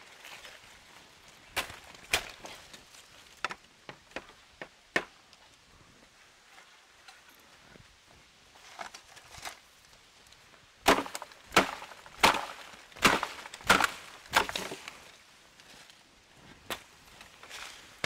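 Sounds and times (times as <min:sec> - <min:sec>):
blade chopping bamboo: 0:10.9 - 0:14.9.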